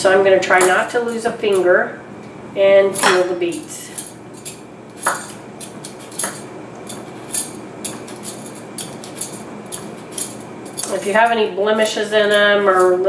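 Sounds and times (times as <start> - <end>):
peeler scraping beet skin: 3.6 - 13.0.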